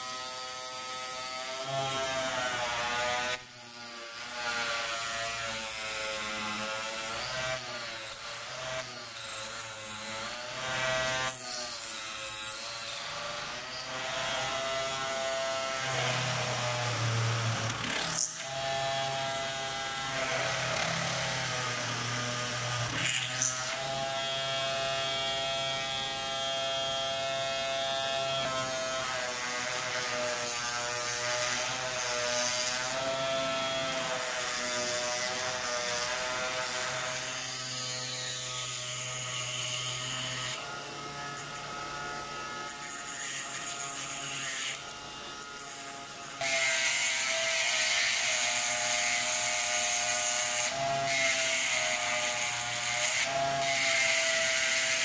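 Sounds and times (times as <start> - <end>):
rotary tool motor whine: 38.0 - 55.0
grinding stone hissing on steel: 42.6 - 55.0.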